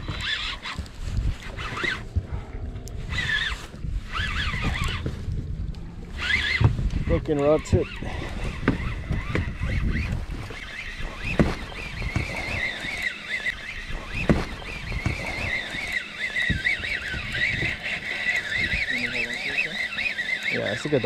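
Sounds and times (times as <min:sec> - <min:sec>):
wind rumbling on microphone: 0:00.0 - 0:19.8
high wavering whine: 0:00.0 - 0:21.0
knocks on boat: 0:08.6 - 0:09.5, 0:11.3 - 0:12.4, 0:14.2 - 0:15.3.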